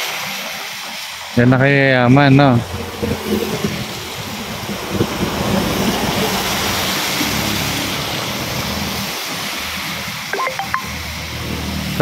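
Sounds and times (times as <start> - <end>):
tyres hissing on wet road: 0.0 - 12.0
vehicle engine hum: 2.1 - 10.2.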